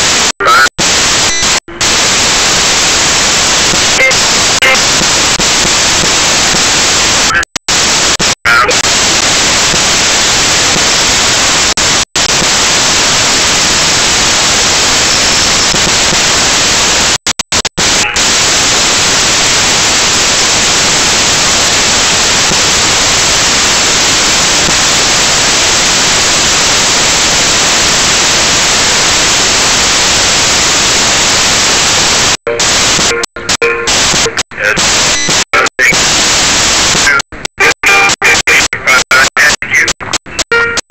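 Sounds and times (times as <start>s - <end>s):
static hiss: 0.0s - 40.9s.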